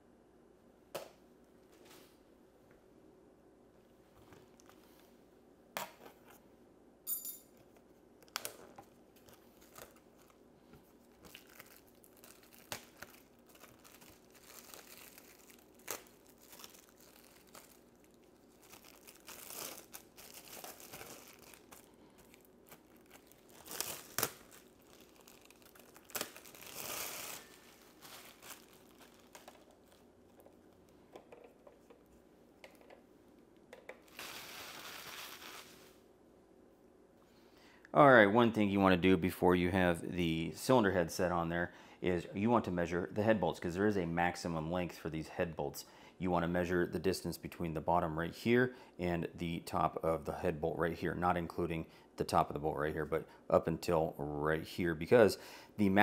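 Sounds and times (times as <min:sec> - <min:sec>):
plastic wrapping crinkling: 0:08.2 - 0:31.0, 0:34.0 - 0:36.0.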